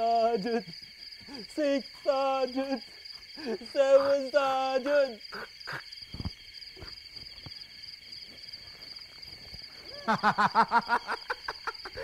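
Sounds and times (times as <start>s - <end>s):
crickets chirring: 0.0s - 12.0s
man giggling: 0.2s - 0.8s, 9.9s - 12.0s.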